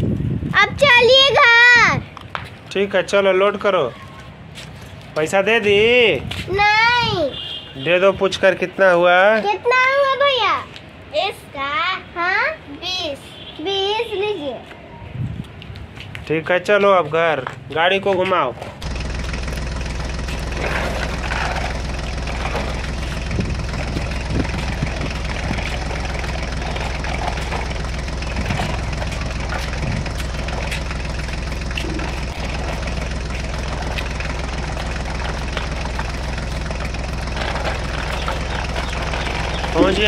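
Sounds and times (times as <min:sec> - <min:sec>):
tractor engine running: 0:18.8 - 0:40.0.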